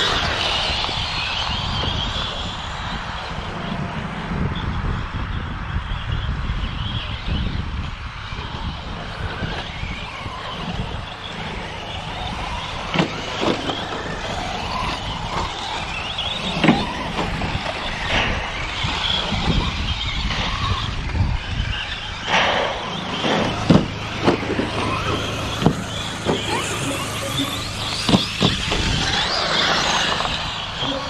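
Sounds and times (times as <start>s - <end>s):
tyres on dirt: 0.0s - 4.7s, 8.2s - 31.0s
electric motors whining: 0.0s - 31.0s
sharp knocks from landings: 22.2s - 31.0s.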